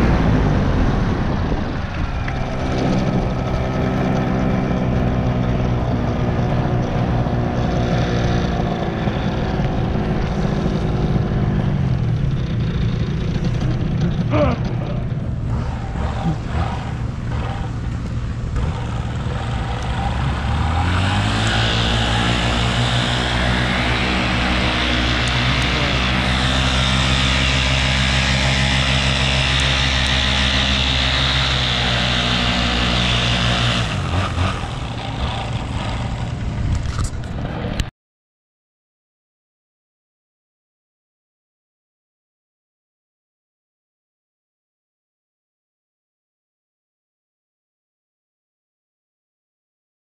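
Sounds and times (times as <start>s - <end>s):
paramotor engine and propeller: 0.0s - 37.9s.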